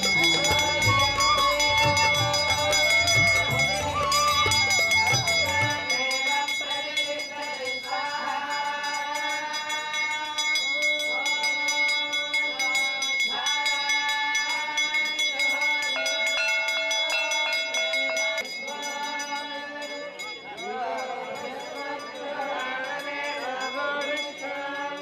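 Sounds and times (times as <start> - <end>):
steady high tone: 0.0 - 6.6
group of voices singing: 0.0 - 25.0.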